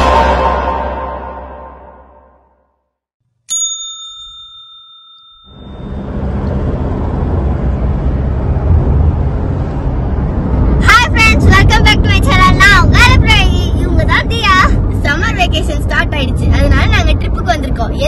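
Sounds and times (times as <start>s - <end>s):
intro music: 0.0s - 2.6s
bright bell ding: 3.5s - 6.1s
car road and engine rumble: 5.5s - 18.0s.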